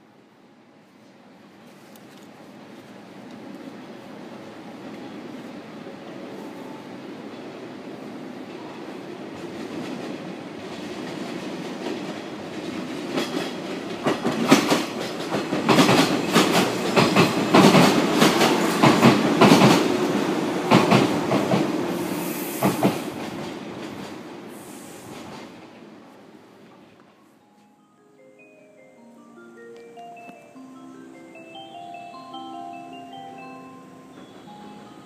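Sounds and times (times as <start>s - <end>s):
electric train running past: 2.4s - 35.0s
wheels clicking over rail joints: 9.7s - 21.6s.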